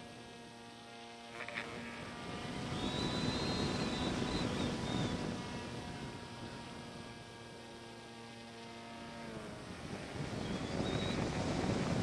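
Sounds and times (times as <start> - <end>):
electric motor and propeller whining: 0.0 - 12.0
wind rushing over microphone: 1.6 - 7.7, 9.2 - 12.0.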